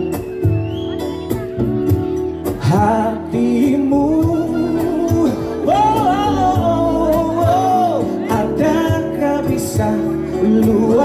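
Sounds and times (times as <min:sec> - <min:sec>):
amplified instrumental backing with drums: 0:00.0 - 0:11.0
man singing: 0:02.4 - 0:11.0.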